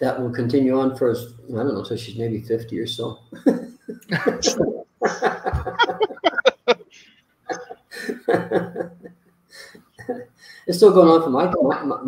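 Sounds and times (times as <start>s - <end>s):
men laughing: 3.4s - 6.8s, 7.5s - 9.0s.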